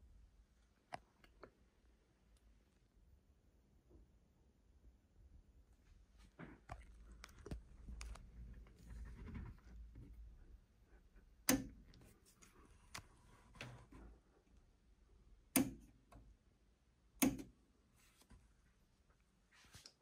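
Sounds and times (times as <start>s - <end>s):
sharp clicks or knocks: 11.4s - 12.0s, 15.5s - 15.9s, 17.2s - 17.5s.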